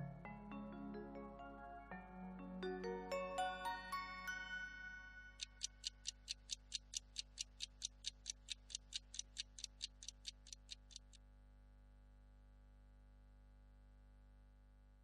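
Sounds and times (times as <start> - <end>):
clock-like ticking in music: 4.0 - 11.2.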